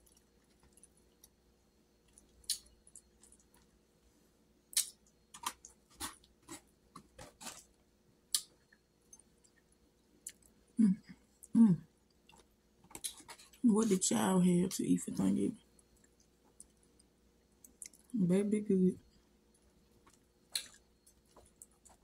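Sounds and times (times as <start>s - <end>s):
chewing and mouth clicks: 0.0s - 1.4s, 2.0s - 3.7s, 4.7s - 7.6s, 8.3s - 10.6s, 11.4s - 13.6s, 15.7s - 18.1s, 19.5s - 22.0s
faint steady hum: 0.0s - 22.0s.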